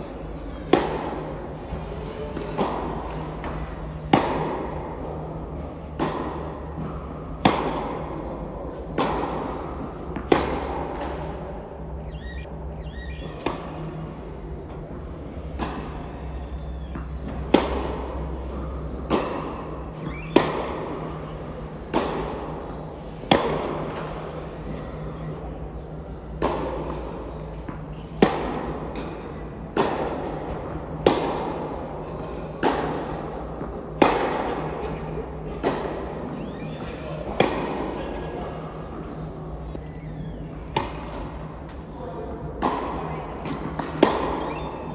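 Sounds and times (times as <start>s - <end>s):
rackets striking tennis ball: 0.1s - 12.6s, 13.3s - 25.3s, 26.3s - 36.1s, 37.2s - 38.0s, 40.6s - 41.8s, 42.5s - 44.9s.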